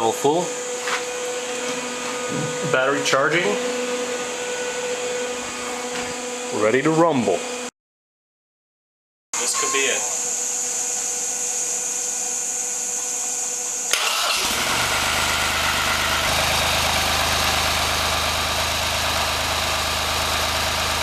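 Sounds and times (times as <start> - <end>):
tractor engine starting and idling: 13.9 - 21.0.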